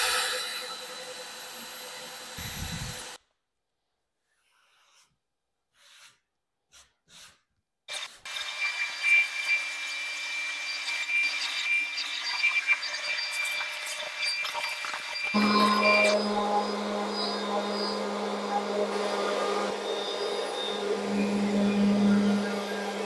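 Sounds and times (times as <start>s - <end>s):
power tool cutting wood: 0.0s - 3.2s, 8.2s - 23.0s
low steady hum: 15.4s - 23.0s.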